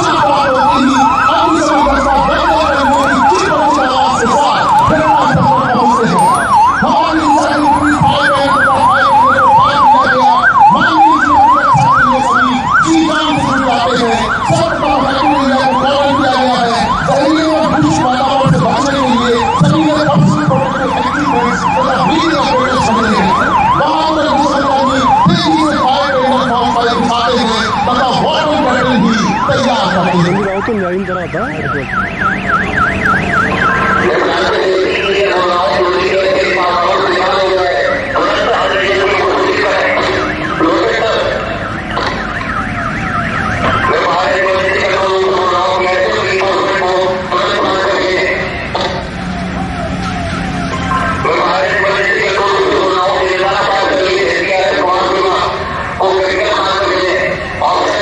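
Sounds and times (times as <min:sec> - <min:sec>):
electronic siren yelping: 0:00.0 - 0:58.0.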